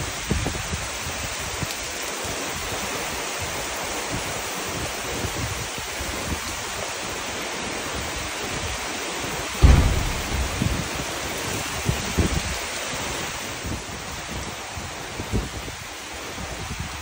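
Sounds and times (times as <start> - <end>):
low uneven rumble: 9.6 - 11.2
heavy rain pouring: 9.6 - 11.6.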